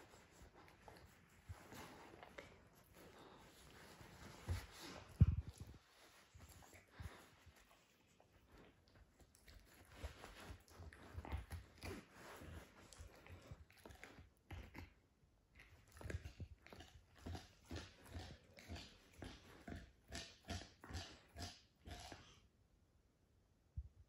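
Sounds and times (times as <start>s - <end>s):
puppy chewing bone: 8.5s - 22.4s.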